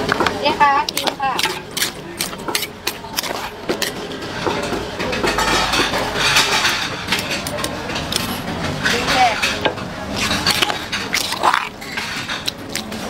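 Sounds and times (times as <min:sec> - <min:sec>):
utensil clinking against bowl: 0:00.2 - 0:13.0
salad sloshing and rustling in bowl: 0:05.4 - 0:13.0.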